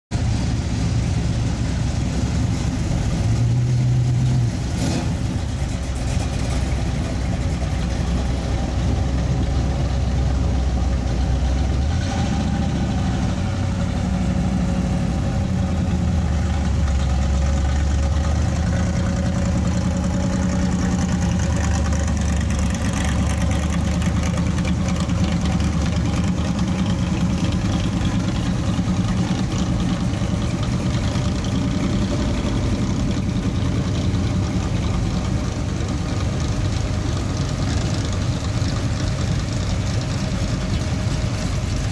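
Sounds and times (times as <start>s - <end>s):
car engines passing at low speed: 0.1s - 41.9s.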